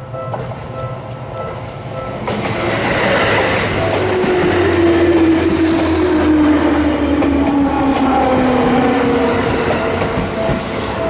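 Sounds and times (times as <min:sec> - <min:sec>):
level crossing warning bell: 0:00.0 - 0:02.4, 0:07.9 - 0:11.0
train wheels rumbling on rails: 0:00.0 - 0:11.0
train motor whine: 0:03.0 - 0:11.0.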